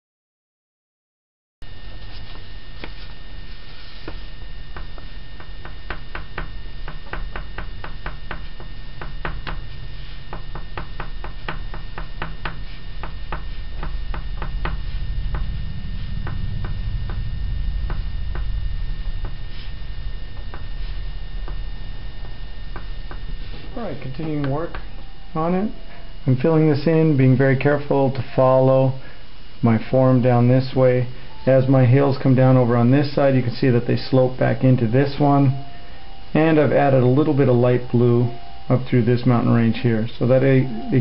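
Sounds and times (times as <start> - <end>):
low hum: 1.6 - 41.0
pastel tapping and scratching paper: 4.8 - 9.7, 10.3 - 15.5.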